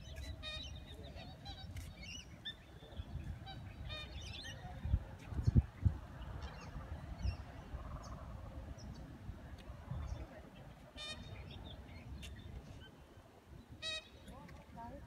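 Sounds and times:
small birds chirping: 0:09.9 - 0:15.0.

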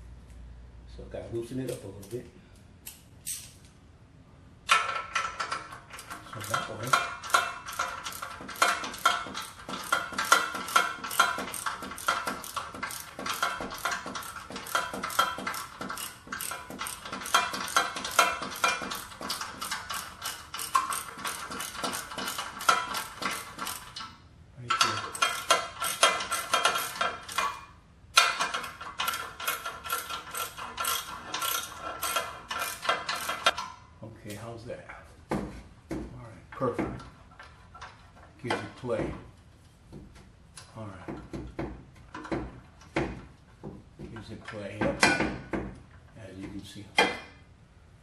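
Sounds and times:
ratchet wrench clicking: 0:04.7 - 0:33.7.

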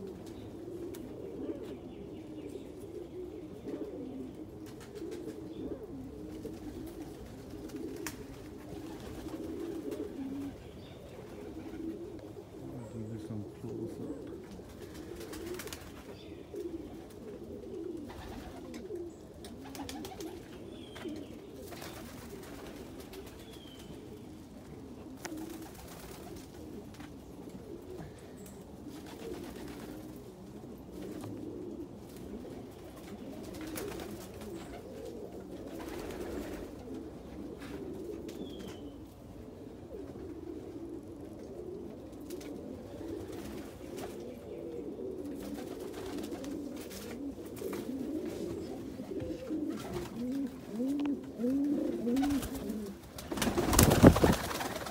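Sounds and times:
pigeons cooing: 0:00.0 - 0:54.9.

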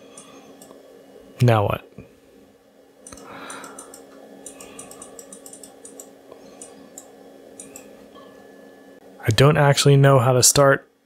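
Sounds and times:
keyboard typing: 0:03.1 - 0:07.9.

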